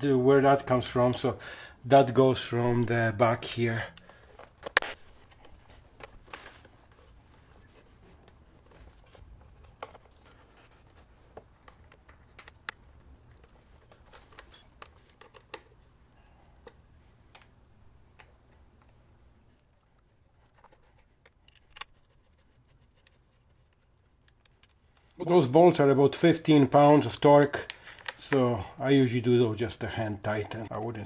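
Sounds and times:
clicks of plastic parts handled: 0:20.5 - 0:22.1, 0:23.0 - 0:25.2, 0:27.6 - 0:28.4.

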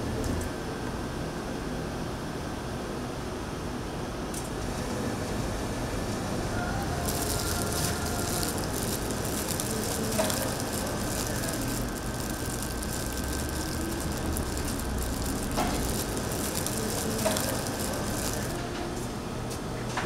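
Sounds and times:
eggs crushing wet crackling: 0:07.0 - 0:18.6.

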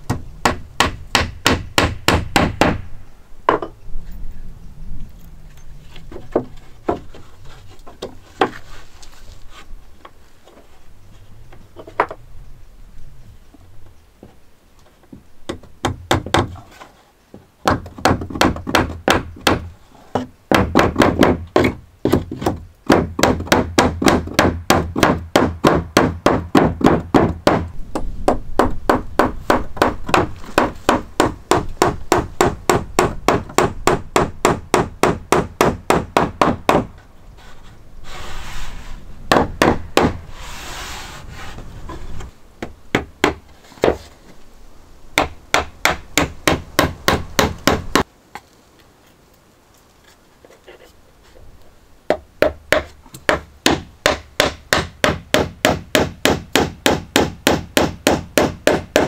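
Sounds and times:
rubbing noise: 0:37.4 - 0:39.2, 0:40.3 - 0:42.3
hammer driving nails into wood: 0:52.4 - 0:59.0.

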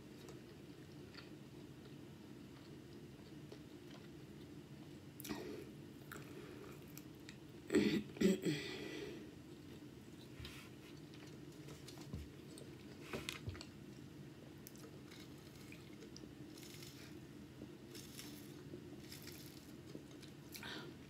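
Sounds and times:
soft chewing and swallowing: 0:00.1 - 0:07.5, 0:09.5 - 0:21.0.

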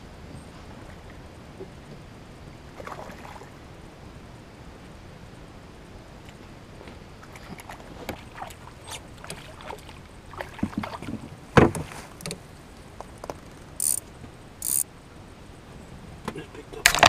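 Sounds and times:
loud thump on boat: 0:11.6 - 0:11.9.

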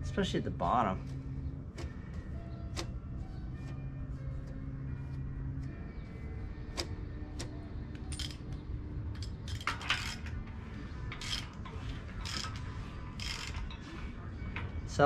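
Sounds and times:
metal tools clinking: 0:08.0 - 0:15.0.

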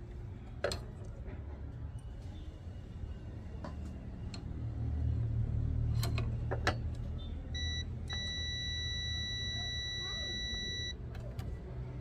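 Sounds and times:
multimeter continuity beep: 0:07.5 - 0:11.0.

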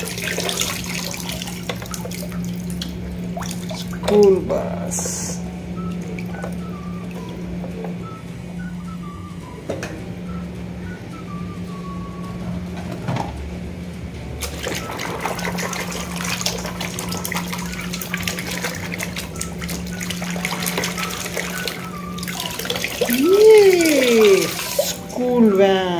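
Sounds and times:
water splashing in plastic basin: 0:00.0 - 0:04.4, 0:14.4 - 0:25.1.

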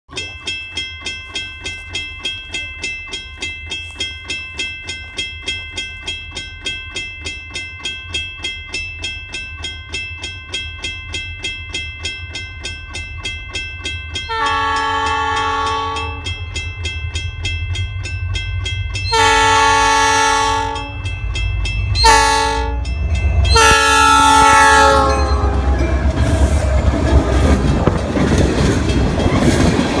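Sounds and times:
railroad crossing bell dinging: 0:00.1 - 0:30.0
train rumbling over rails: 0:00.1 - 0:30.0
locomotive air horn blasts: 0:14.3 - 0:16.2, 0:19.1 - 0:21.0, 0:22.0 - 0:22.9, 0:23.5 - 0:25.8.

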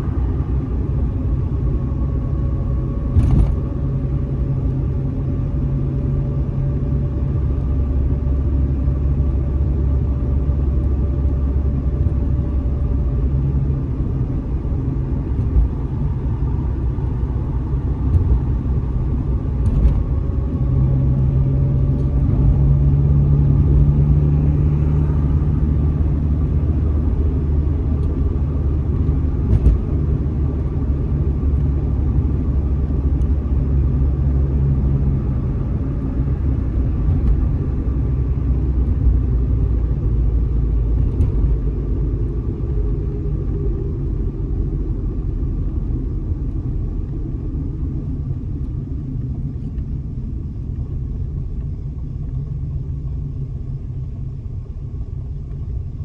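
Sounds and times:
car engine and road noise: 0:00.0 - 0:56.0
steady engine hum: 0:00.0 - 0:56.0.

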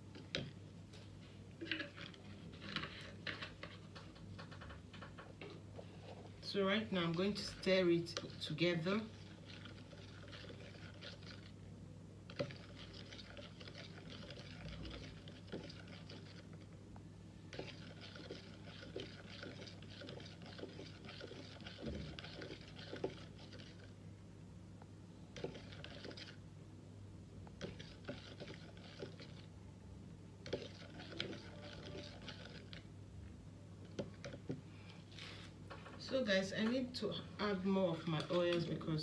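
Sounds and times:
faint low hum: 0:00.0 - 0:39.0
spoon scraping in plastic cup: 0:01.6 - 0:05.6, 0:06.7 - 0:11.5, 0:12.3 - 0:16.7, 0:17.5 - 0:23.9, 0:25.4 - 0:26.4, 0:27.6 - 0:29.5, 0:30.4 - 0:32.9.

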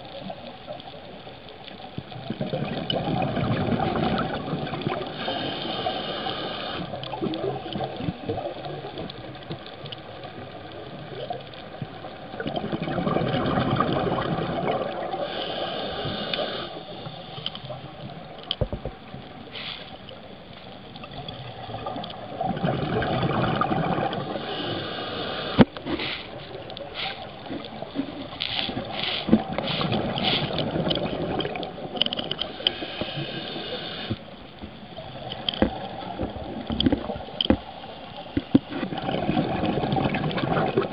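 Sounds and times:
exhaust bubbles gushing: 0:02.2 - 0:05.1, 0:12.3 - 0:15.2, 0:21.6 - 0:24.5, 0:28.8 - 0:32.0, 0:38.8 - 0:40.9
regulator breathing hiss: 0:05.0 - 0:07.0, 0:15.1 - 0:17.9, 0:19.4 - 0:20.2, 0:24.2 - 0:27.6, 0:28.4 - 0:30.7, 0:32.4 - 0:34.4.

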